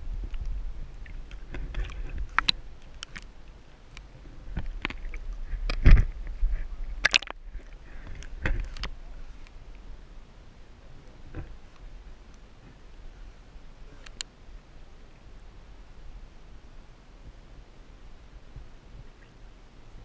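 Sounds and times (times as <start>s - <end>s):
muffled underwater river rumble: 0.0s - 20.0s
sharp clicks and knocks: 7.0s - 7.4s.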